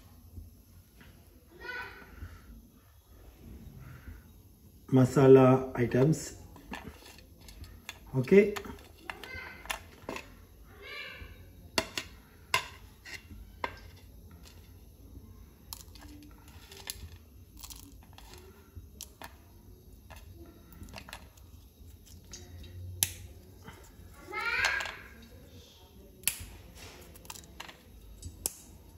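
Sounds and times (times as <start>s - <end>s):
spices clicking into metal cup: 27.2s - 28.7s.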